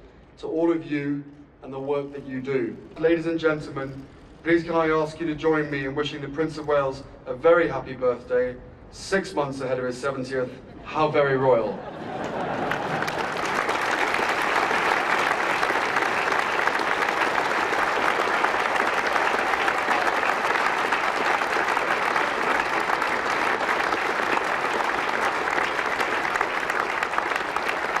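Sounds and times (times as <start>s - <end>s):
crowd applauding: 12.0s - 28.0s.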